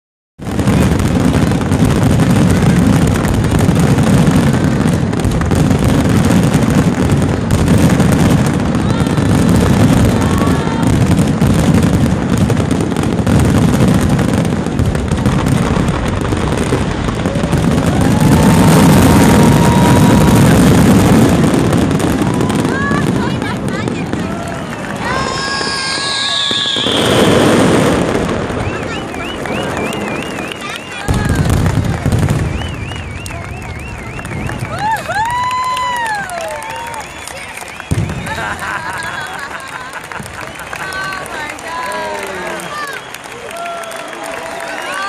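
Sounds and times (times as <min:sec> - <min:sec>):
high firework whistle: 0:17.1 - 0:23.3, 0:24.2 - 0:39.5, 0:42.0 - 0:44.8.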